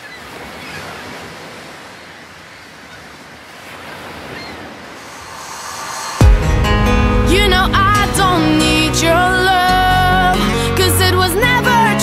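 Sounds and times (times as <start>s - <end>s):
steady rushing noise: 4.7s - 9.7s.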